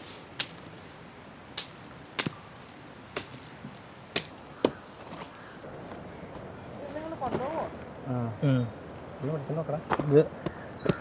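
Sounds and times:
sharp knocks and snaps of plants: 0:00.0 - 0:00.8, 0:01.5 - 0:05.4.

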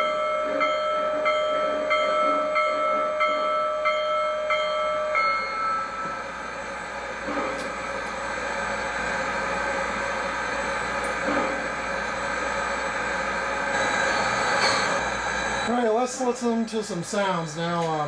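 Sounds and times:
locomotive bell ringing: 0:00.0 - 0:07.1.

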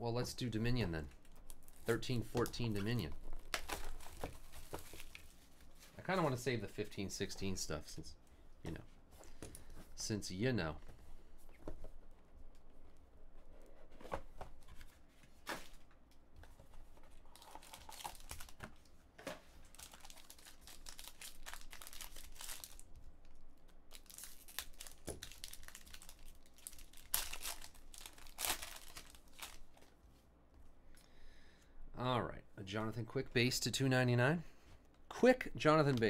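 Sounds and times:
wrapper tearing and crinkling: 0:17.3 - 0:18.6, 0:19.6 - 0:22.9, 0:23.9 - 0:29.8.

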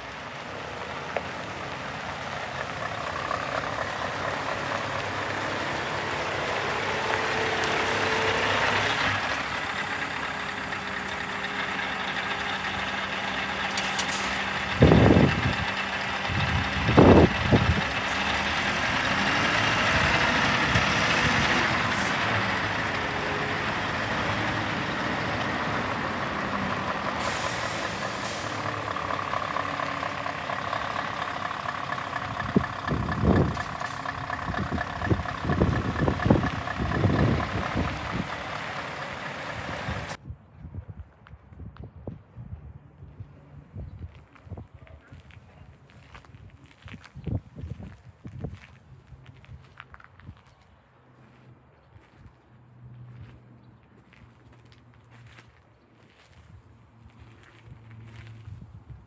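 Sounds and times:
diesel truck engine running: 0:00.0 - 0:40.2
air brake hiss: 0:27.2 - 0:28.6.

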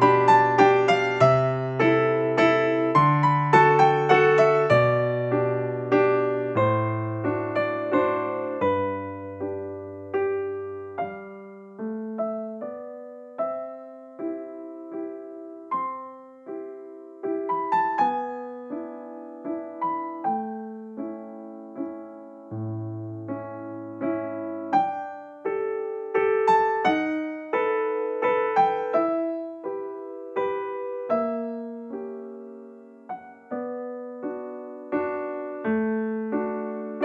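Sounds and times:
solo piano music: 0:00.0 - 0:37.0.

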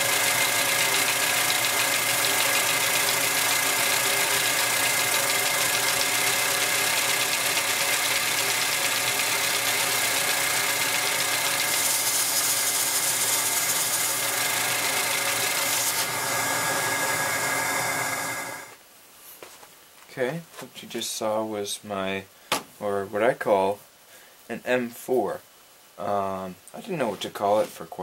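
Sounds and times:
toy engine whirring: 0:00.0 - 0:18.7.

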